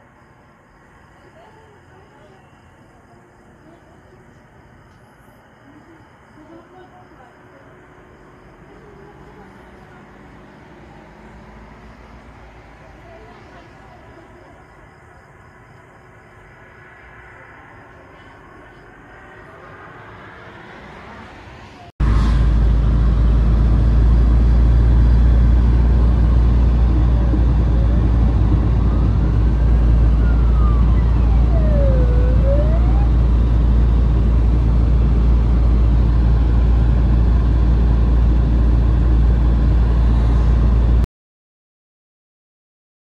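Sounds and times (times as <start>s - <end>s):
loud low rumble: 22.0s - 41.1s
emergency siren wailing: 23.1s - 38.2s.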